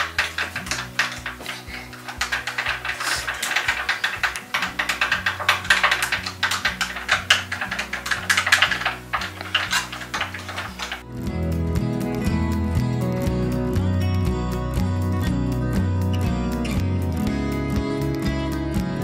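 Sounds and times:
stick clicking against glass: 0.0s - 11.0s
music: 0.0s - 19.0s.

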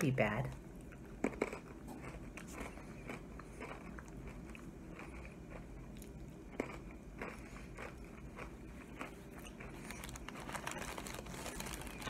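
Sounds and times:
chewing crunches: 0.5s - 12.0s
crunchy snack being bitten: 1.2s - 12.0s.

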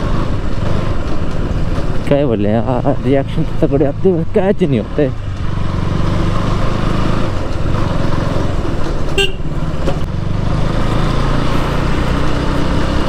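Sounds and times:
motorcycle engine running: 0.0s - 13.0s
motorcycle horn toot: 9.2s - 9.5s.

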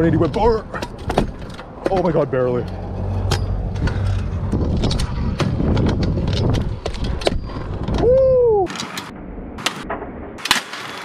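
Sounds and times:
scooter wheels rolling on pavement: 0.0s - 8.1s.

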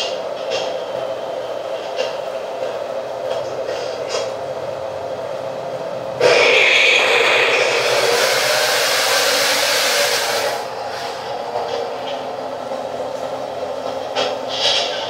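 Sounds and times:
loud hissing rush: 6.2s - 11.3s
model tank drive droning: 6.2s - 11.3s.

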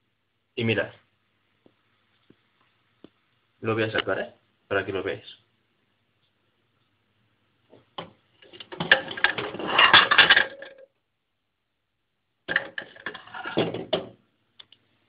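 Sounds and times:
microwave dish clattering and scraping: 8.7s - 10.8s, 12.5s - 14.1s.

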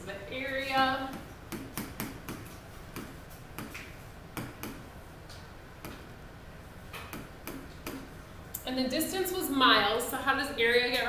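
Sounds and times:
pen tapping on touchscreen glass: 7.0s - 8.0s.

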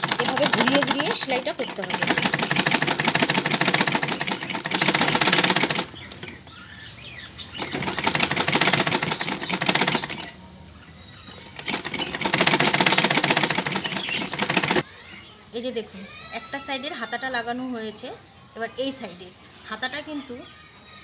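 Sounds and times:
sewing machine rattling: 0.0s - 6.5s, 7.4s - 10.4s, 11.5s - 14.8s.

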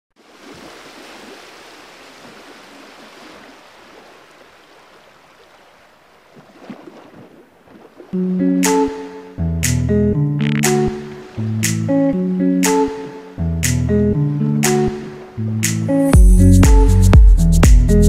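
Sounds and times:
loud plucked music: 8.3s - 18.0s.

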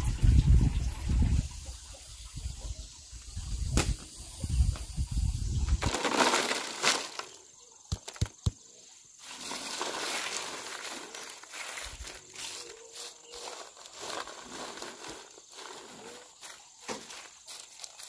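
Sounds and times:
hand rustling chilies: 5.7s - 7.4s, 9.2s - 18.0s
chilies pouring onto a tray: 5.8s - 7.4s, 9.2s - 12.5s, 13.4s - 16.2s.

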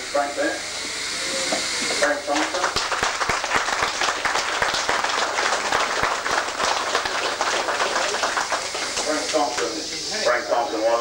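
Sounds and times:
crowd applauding: 2.3s - 9.9s.

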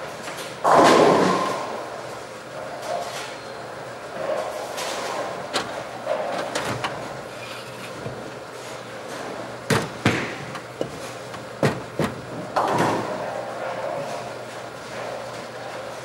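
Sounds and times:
bowling balls and pins clattering: 0.5s - 1.9s, 4.2s - 14.4s.

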